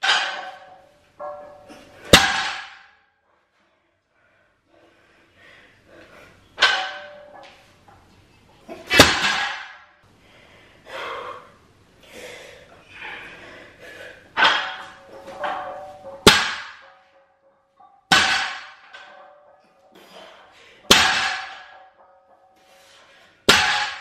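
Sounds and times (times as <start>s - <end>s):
barbell clanking on floor: 14.4s - 17.0s.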